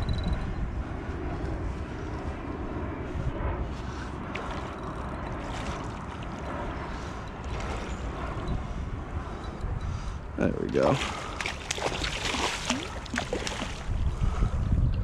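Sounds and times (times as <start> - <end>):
wind buffeting microphone: 0.0 - 15.0
shallow water washing: 3.8 - 8.4, 10.6 - 14.3.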